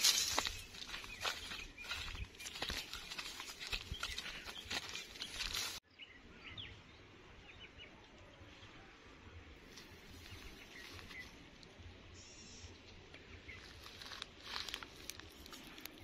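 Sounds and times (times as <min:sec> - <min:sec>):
footsteps on a path: 0:00.0 - 0:05.8, 0:09.6 - 0:11.6, 0:13.4 - 0:16.0
rustling of leaves and branches: 0:00.0 - 0:05.8, 0:09.5 - 0:16.0
high bird chirps: 0:00.3 - 0:05.7.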